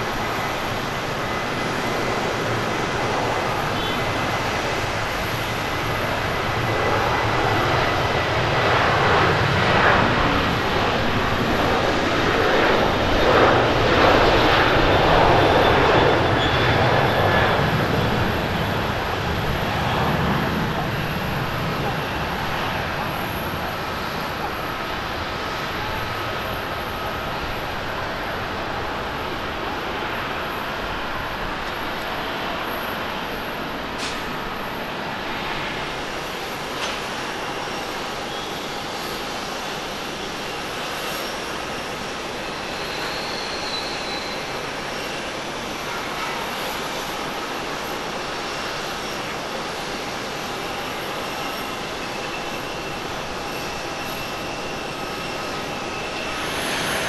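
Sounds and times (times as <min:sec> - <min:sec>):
jet engine rushing: 0:00.0 - 0:57.0.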